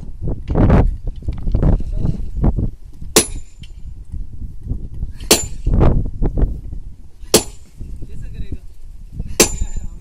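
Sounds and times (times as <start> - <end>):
sledgehammer clanging on steel: 3.2 - 3.8, 5.2 - 5.7, 9.3 - 9.9.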